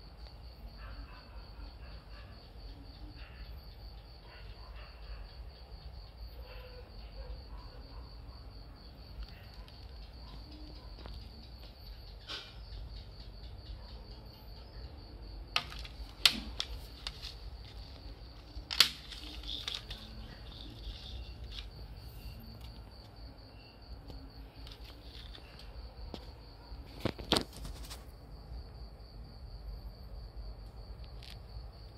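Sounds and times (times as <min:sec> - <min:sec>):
plastic case clicking and knocking: 0:15.6 - 0:21.7.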